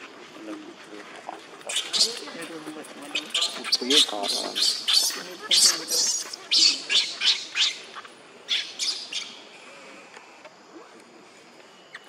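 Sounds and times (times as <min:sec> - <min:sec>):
baby monkey shrill squeals: 0:01.7 - 0:02.3, 0:03.1 - 0:09.4.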